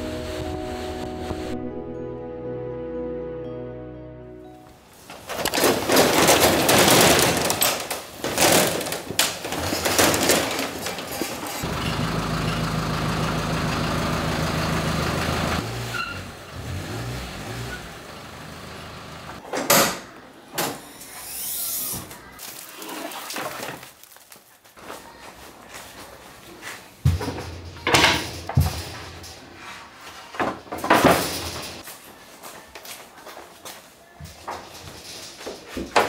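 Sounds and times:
metal roller shutter rattling: 5.1s - 15.6s, 27.2s - 31.9s
van engine running: 11.6s - 19.4s.

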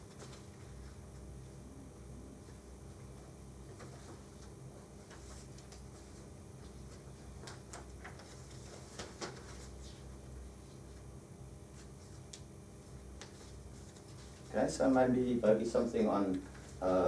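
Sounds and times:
low room hum: 0.0s - 17.0s
paper rustling and pages turning: 3.7s - 10.1s, 13.2s - 14.6s.

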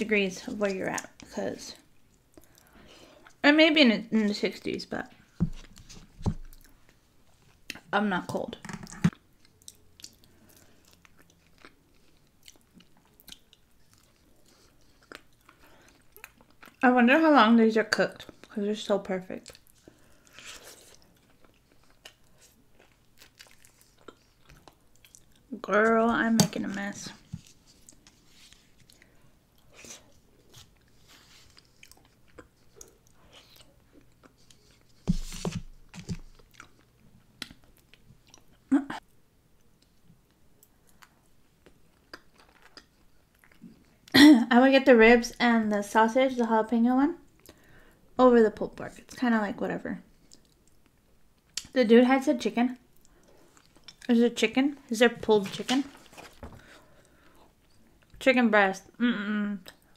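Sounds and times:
person chewing: 6.4s - 7.0s, 9.0s - 16.8s, 19.4s - 25.5s, 27.2s - 35.0s, 35.9s - 38.6s, 40.6s - 44.1s, 52.9s - 54.1s.

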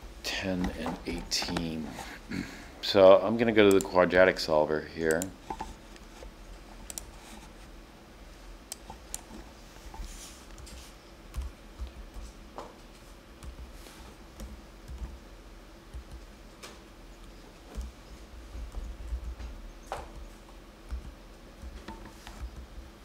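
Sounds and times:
faint low hum: 0.0s - 23.0s.

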